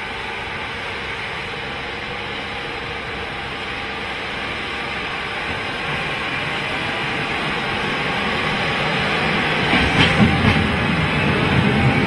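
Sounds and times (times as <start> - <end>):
train machinery hissing and rumbling: 0.0 - 12.0.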